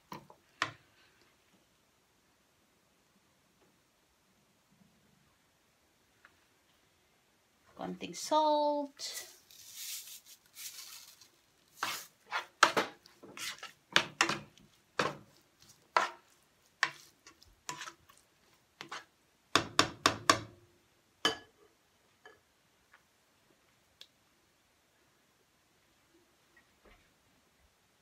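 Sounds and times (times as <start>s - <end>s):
salt shaken into pan: 9.0s - 12.2s
spoon scraping frying pan: 11.7s - 19.1s.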